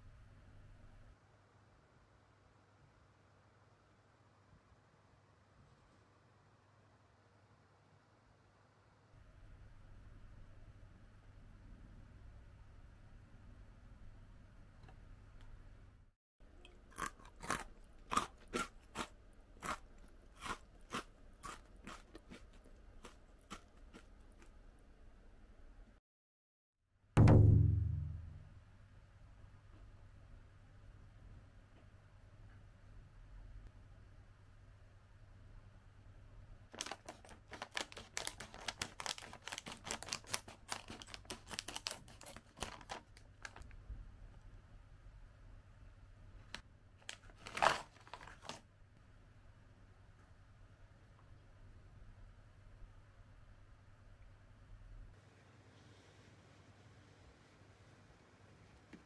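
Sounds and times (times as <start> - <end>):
chewing crunchy cracker sticks: 16.9 - 24.6, 36.7 - 43.7
chip bag crinkling: 36.7 - 43.8, 47.0 - 48.7
scissors cutting bag: 36.8 - 43.0.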